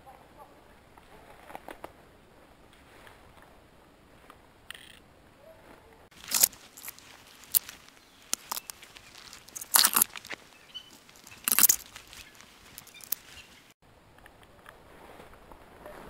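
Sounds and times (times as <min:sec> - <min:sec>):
footsteps crunching through dry leaves: 0:06.1 - 0:13.8.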